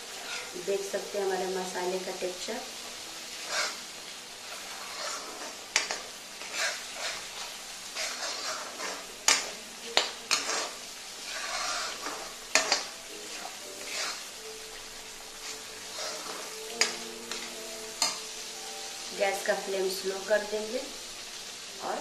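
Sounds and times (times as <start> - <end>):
masala sizzling in oil: 0.0 - 22.0
metal spoon scraping pan: 0.1 - 0.6, 3.4 - 3.8, 4.5 - 14.3, 15.4 - 18.2.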